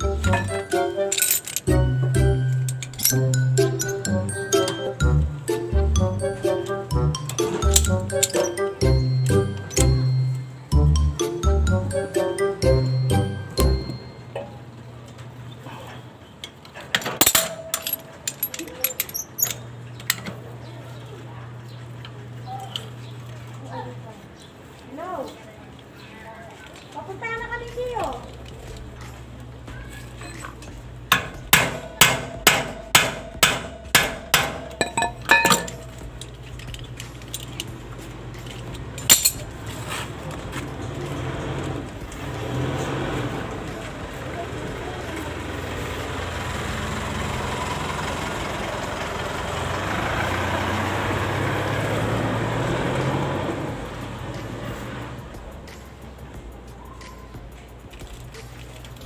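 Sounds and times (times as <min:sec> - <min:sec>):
metal hand tools clinking: 0:00.0 - 0:05.3, 0:06.4 - 0:10.5, 0:17.0 - 0:20.2, 0:30.2 - 0:40.0.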